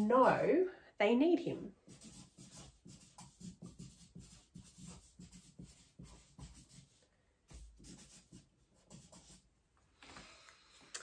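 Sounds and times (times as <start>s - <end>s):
marker pen scratching on paper: 1.8s - 9.5s.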